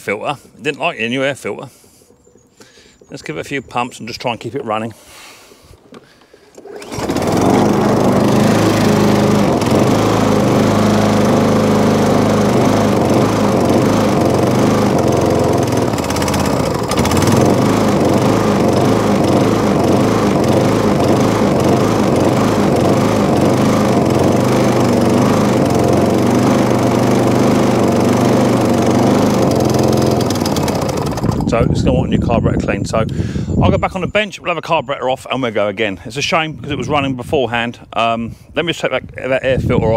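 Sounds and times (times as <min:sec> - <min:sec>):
lawn mower engine running unevenly: 0:05.8 - 0:31.8.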